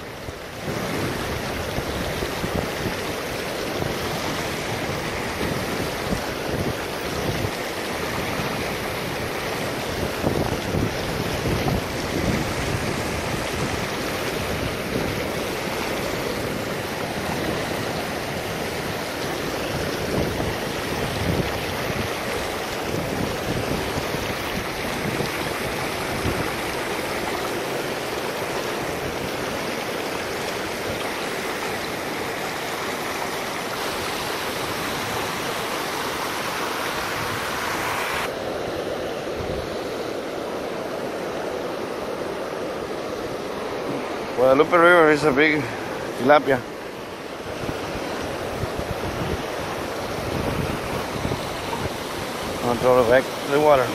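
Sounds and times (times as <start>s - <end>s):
river water rushing: 0.0s - 53.9s
wind buffeting microphone: 0.1s - 40.1s, 45.4s - 53.9s.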